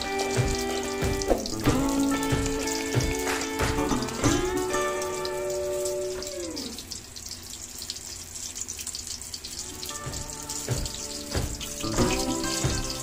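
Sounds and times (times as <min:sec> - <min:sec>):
background music: 0:00.0 - 0:06.8, 0:09.6 - 0:13.0
oil sizzling in a wok: 0:00.0 - 0:13.0.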